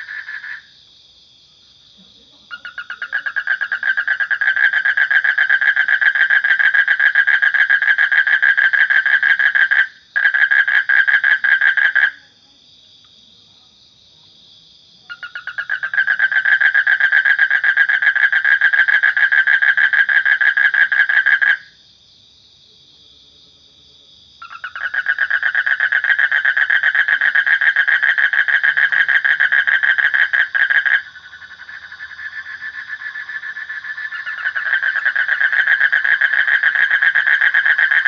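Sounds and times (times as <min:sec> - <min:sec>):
toad trilling: 0:02.5 - 0:12.2, 0:15.1 - 0:21.7, 0:24.4 - 0:38.0.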